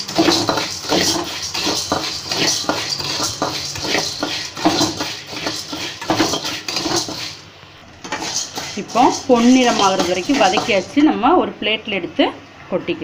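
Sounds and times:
dry lentils rattling in pan: 0.0 - 7.4, 8.1 - 11.0
ladle scraping metal pan: 0.0 - 11.2.

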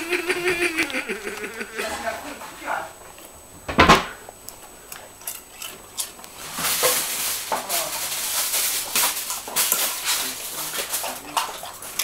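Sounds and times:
chip bag rustling and crinkling: 6.3 - 12.0.

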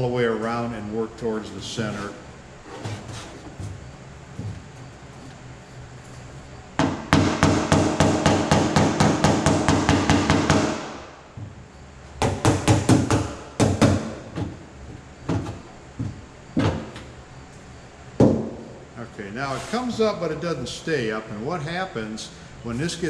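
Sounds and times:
hammer tapping on sheet metal: 6.8 - 11.0, 12.2 - 14.5.

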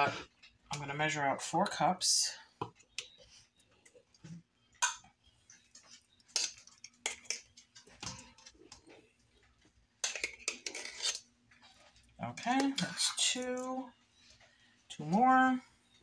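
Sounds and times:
metal cup scraping plastic tub: 10.2 - 11.3.

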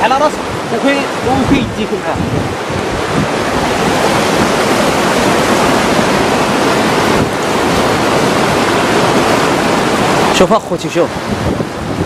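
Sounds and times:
flood torrent rushing: 0.0 - 12.0.

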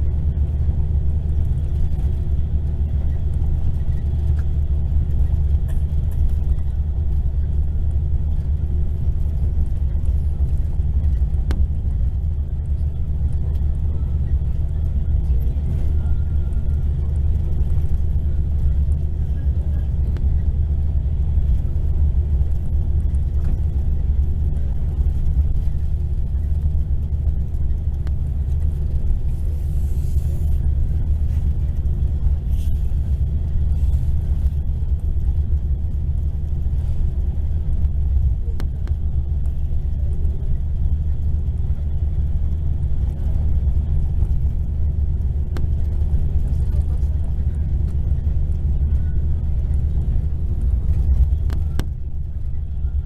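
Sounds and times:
coach engine and road rumble: 0.0 - 53.0.

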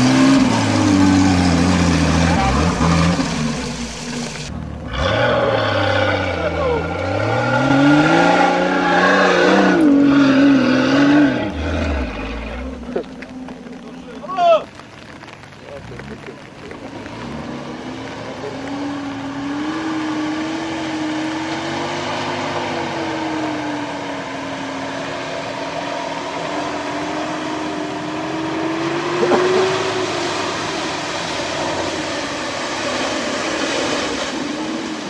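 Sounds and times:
water splashing and hissing: 0.0 - 4.5
vehicle engine revving: 0.0 - 14.2, 15.4 - 35.0.

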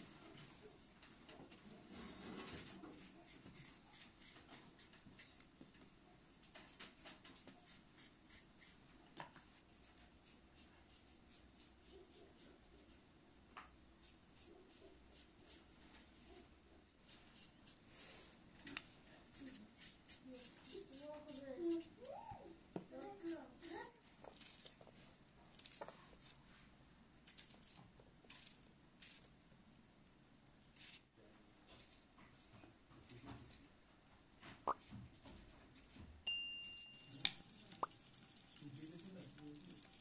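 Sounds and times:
knife scraping cucumber skin: 19.3 - 22.1.

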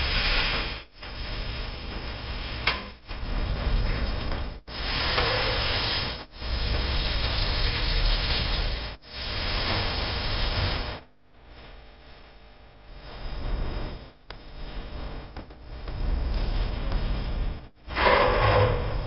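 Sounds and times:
onions sizzling in oil: 4.7 - 11.0.

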